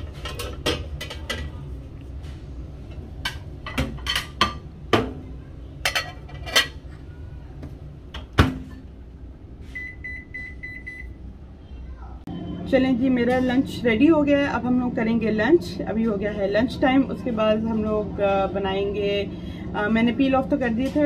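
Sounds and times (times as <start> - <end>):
china dishes clinking: 5.8 - 6.8.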